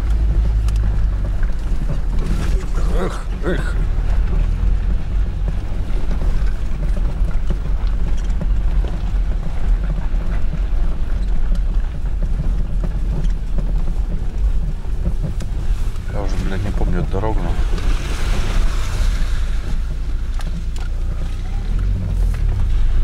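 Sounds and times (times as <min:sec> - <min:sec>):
vehicle engine and tyre rumble: 0:00.0 - 0:23.0.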